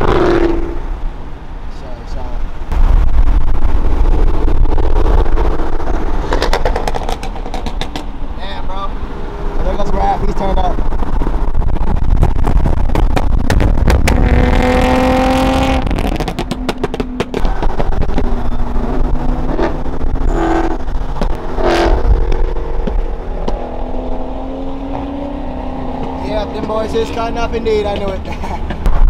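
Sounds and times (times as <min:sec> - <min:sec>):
car engines rumbling: 0:00.0 - 0:29.0
sharp exhaust pops: 0:02.7 - 0:08.2, 0:10.9 - 0:23.7.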